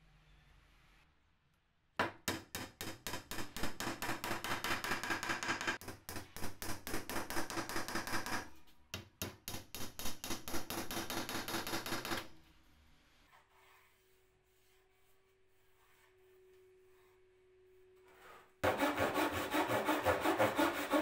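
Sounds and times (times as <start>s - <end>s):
hammer striking wooden dowels: 2.0s - 12.3s.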